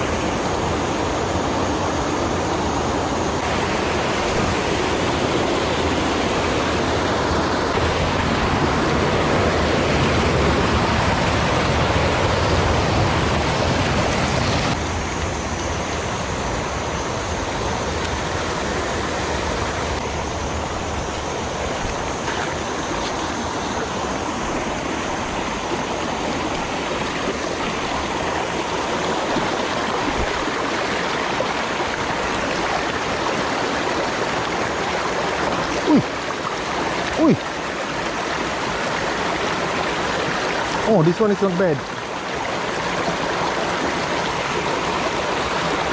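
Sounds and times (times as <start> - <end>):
stream rushing over boulders: 0.0 - 45.9
shallow water running over stones: 21.6 - 45.9.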